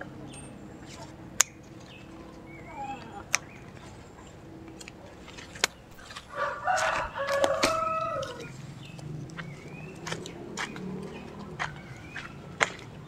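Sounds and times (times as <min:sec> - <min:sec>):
rooster crowing: 0:06.3 - 0:08.6.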